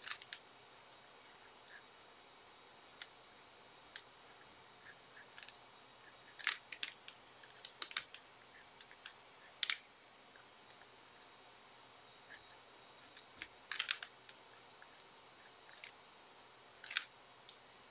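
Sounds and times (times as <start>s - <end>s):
pencil scratching on paper: 3.4s - 5.4s.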